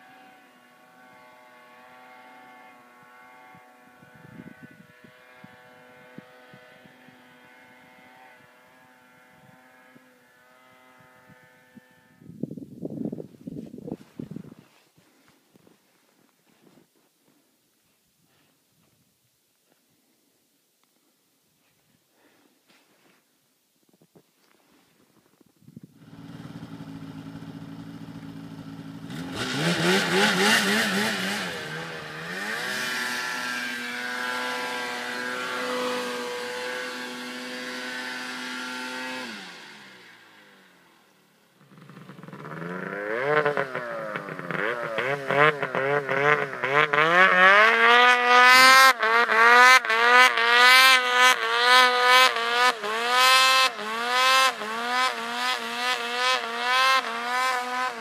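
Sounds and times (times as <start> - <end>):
snowmobile engine revving: 0.0 - 12.2, 26.0 - 58.0.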